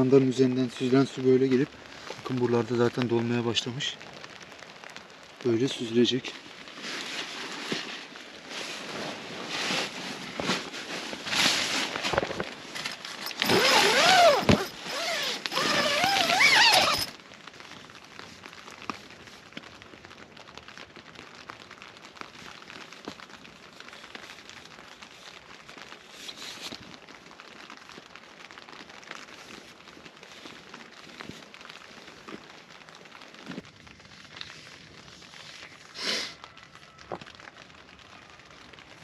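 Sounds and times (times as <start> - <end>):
rain pattering on tent: 0.0 - 39.0
tent fabric rustling: 6.3 - 19.4, 22.1 - 36.3
gear being handled: 8.8 - 17.1
zipper being pulled: 12.8 - 17.1.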